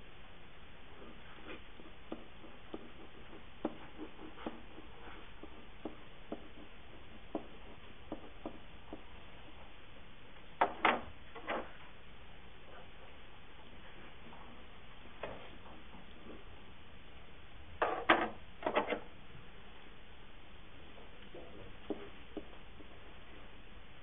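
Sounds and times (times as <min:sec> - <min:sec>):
stylus tapping while writing: 0:01.0 - 0:09.2, 0:21.8 - 0:22.6
scratchy knocks: 0:01.5 - 0:09.1.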